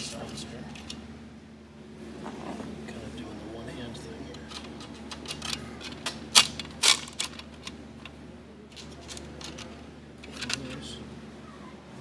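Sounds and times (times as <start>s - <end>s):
steady low hum: 0.0s - 12.0s
small metal parts clicking and tapping: 4.4s - 10.8s.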